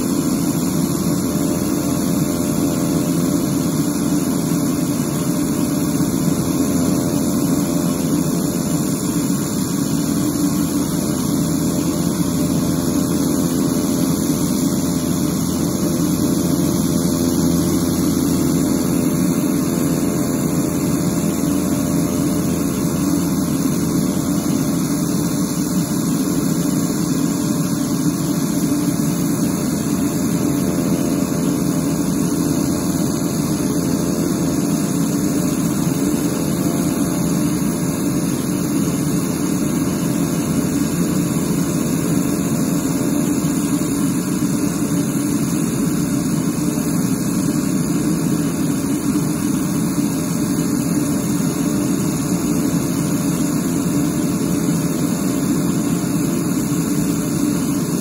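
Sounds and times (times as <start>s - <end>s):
aircraft engines running: 0.0s - 58.0s.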